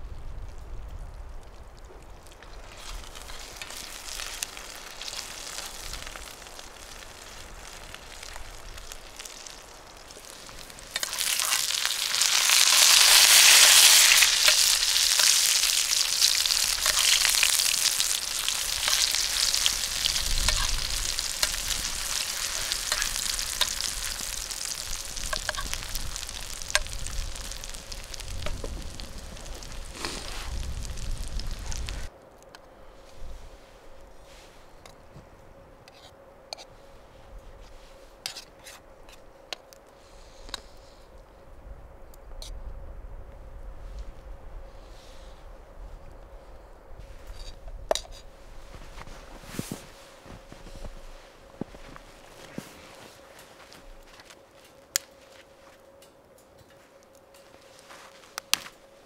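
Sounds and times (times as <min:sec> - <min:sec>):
meat sizzling in pan: 0:02.5 - 0:32.1.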